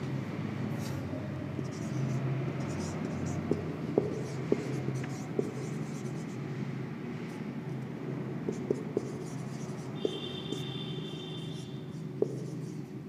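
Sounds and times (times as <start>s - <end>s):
marker writing on whiteboard: 0.8s - 6.6s, 7.2s - 13.0s
marker tip ticking on board: 8.5s - 12.8s
high marker squeak: 9.6s - 12.0s.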